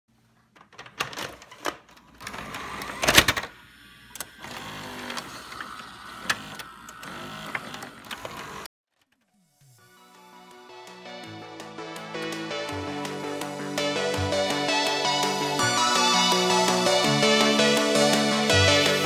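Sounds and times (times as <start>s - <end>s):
cassette mechanism clicks and clunks: 0.5s - 3.6s, 6.1s - 8.6s
mechanical whir: 2.2s - 8.7s.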